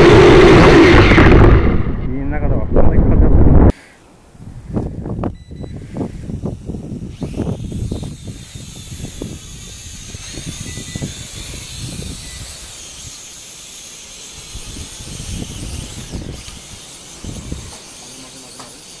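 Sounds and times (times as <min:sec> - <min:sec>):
wind buffeting microphone: 0:00.0 - 0:03.7, 0:04.4 - 0:13.2, 0:14.4 - 0:17.7
quadcopter motors whining: 0:04.7 - 0:19.0.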